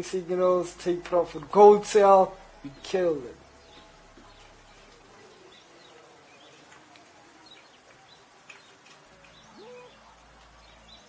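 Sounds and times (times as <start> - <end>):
bird chirps: 7.4 - 11.0.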